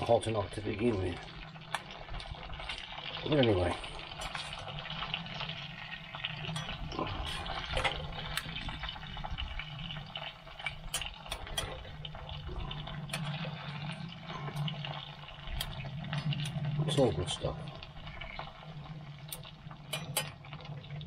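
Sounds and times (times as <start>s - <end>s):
food sizzling in hot fat: 0.0s - 21.0s
metal spatula stirring in pan: 10.2s - 16.7s.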